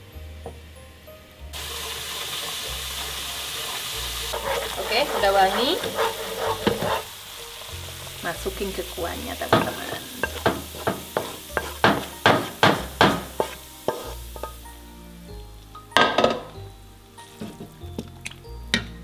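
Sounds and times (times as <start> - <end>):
aromatics sizzling in oil: 0.0 - 19.0
utensil scraping a pan: 1.6 - 7.2, 9.5 - 14.6.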